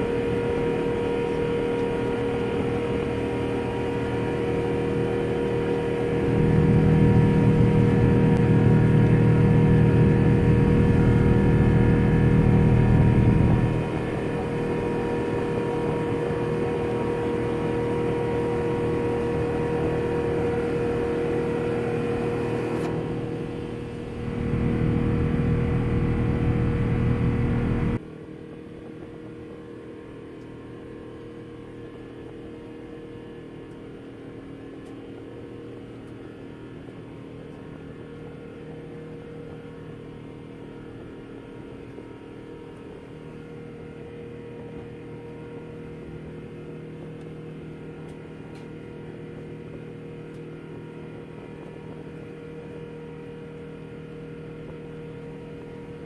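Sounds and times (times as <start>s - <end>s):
airplane cabin rumble: 0.0s - 33.5s
steady cabin drone with hum: 0.0s - 56.0s.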